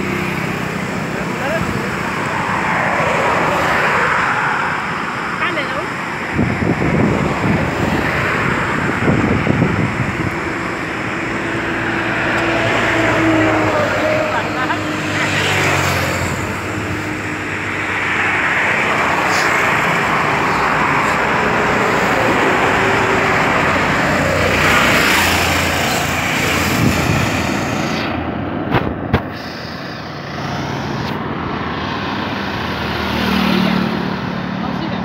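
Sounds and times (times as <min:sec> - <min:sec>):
highway traffic roar: 0:00.0 - 0:35.0.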